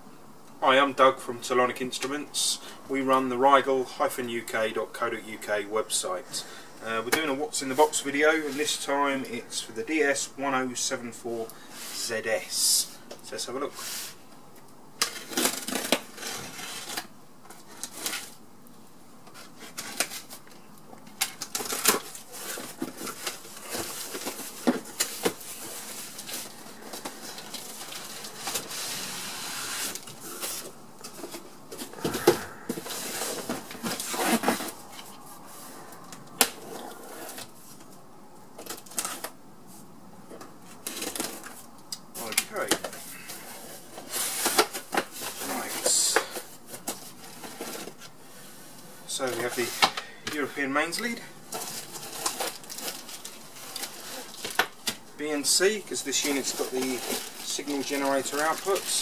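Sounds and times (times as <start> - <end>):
cardboard flaps rustling: 21.4 - 35.8, 49.1 - 59.0.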